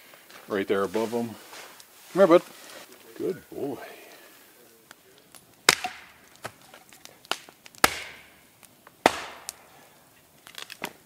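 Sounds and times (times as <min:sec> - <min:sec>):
axe blows chopping wood: 0:05.7 - 0:06.2, 0:07.8 - 0:08.3, 0:09.0 - 0:09.6.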